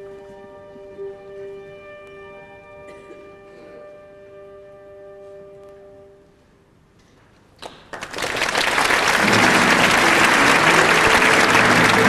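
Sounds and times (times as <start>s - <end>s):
audience applauding: 7.7s - 12.0s.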